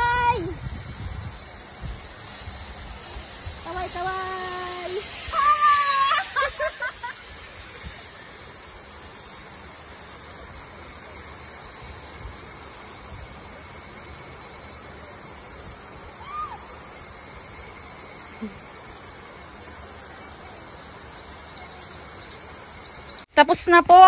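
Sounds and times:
high pulsing insect drone: 0.0s - 24.0s
rushing hiss like flowing water: 0.0s - 24.0s.

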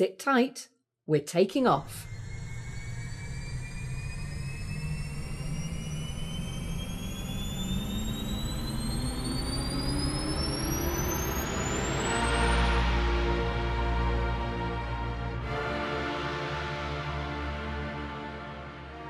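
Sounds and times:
spacecraft engines rumbling and whining: 1.8s - 15.6s.

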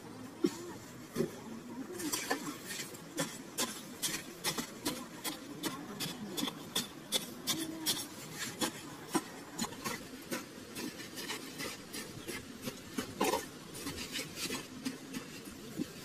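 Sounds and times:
metal blade scraping soil: 2.1s - 16.0s.

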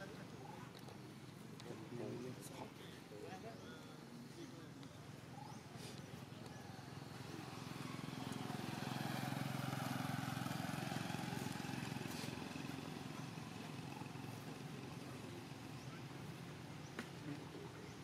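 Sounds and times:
vehicle engine passing by: 5.8s - 16.7s.

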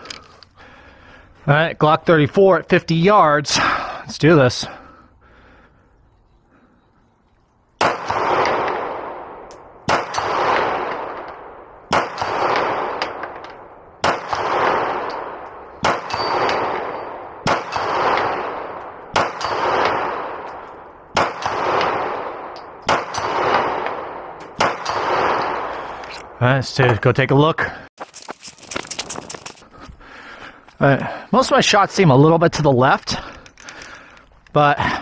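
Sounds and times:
pistol shots echoing: 7.8s - 25.7s.

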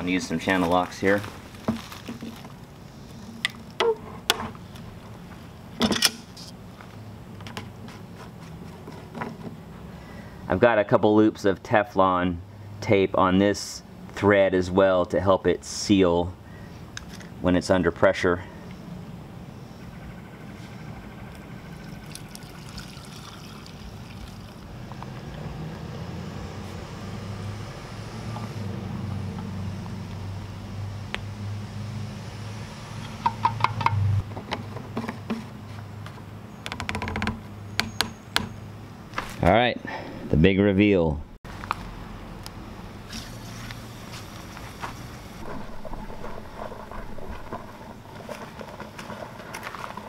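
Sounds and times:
soapy water trickling: 21.8s - 24.7s
steady low rumble: 45.0s - 49.4s.

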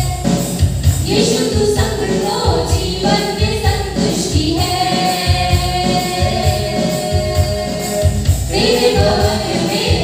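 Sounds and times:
instrumental backing with beat: 0.0s - 10.0s
women singing into microphones: 0.0s - 10.0s.

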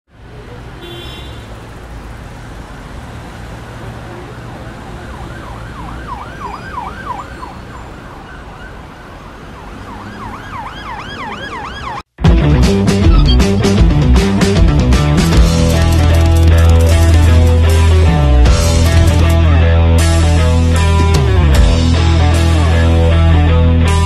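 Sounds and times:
city traffic rumble: 0.1s - 24.0s
siren yelping: 5.0s - 12.1s.

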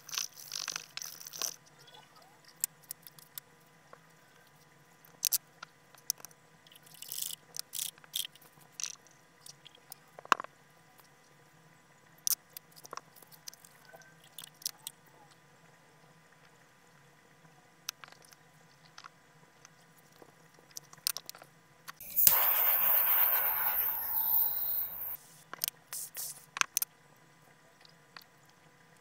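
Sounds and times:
small wet clicks: 0.0s - 1.8s, 4.5s - 10.0s, 12.2s - 15.0s
faint steady hum: 8.4s - 29.0s.

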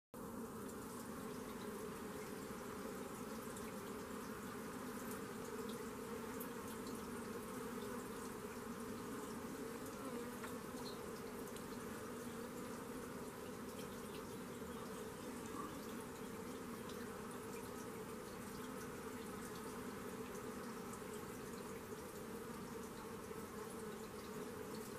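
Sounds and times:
buzz of flying insects: 0.2s - 24.9s
faint ticks: 5.0s - 8.8s, 9.8s - 24.9s.

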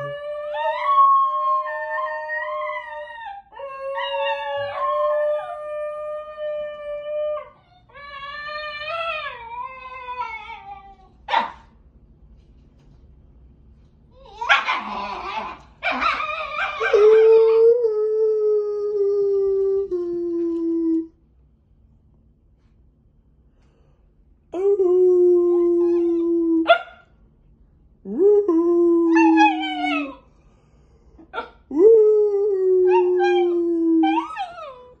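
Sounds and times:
dog yowling and howling: 0.0s - 11.6s, 14.3s - 19.9s, 25.4s - 27.0s, 28.9s - 30.3s, 31.4s - 35.0s
dog yodelling: 14.3s - 17.8s, 29.1s - 30.2s, 32.8s - 35.0s.

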